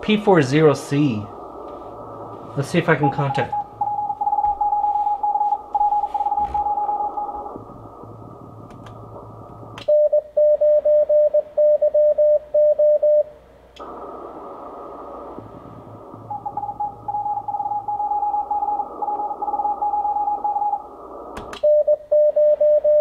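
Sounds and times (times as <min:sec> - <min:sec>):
radio band hiss: 0:00.0 - 0:09.8, 0:13.8 - 0:21.6
morse code tone: 0:02.8 - 0:07.5.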